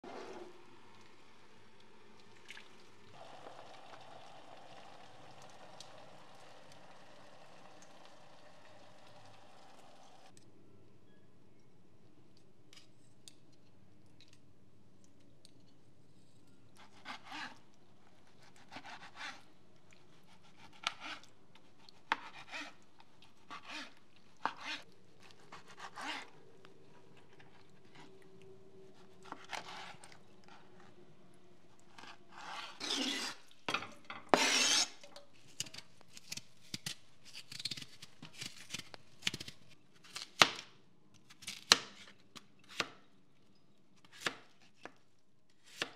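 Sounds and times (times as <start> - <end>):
knife slicing fish: 18.3 - 19.4, 20.1 - 26.4, 34.3 - 35.0.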